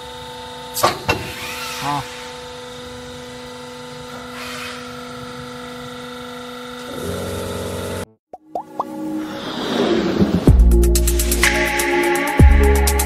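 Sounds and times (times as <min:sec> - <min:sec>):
hydraulic pump motor humming: 0:00.0 - 0:08.1.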